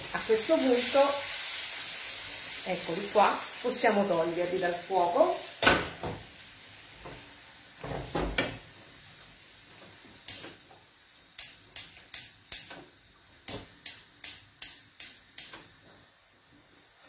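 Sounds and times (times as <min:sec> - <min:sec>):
gas hob igniter ticking: 0:10.2 - 0:15.8.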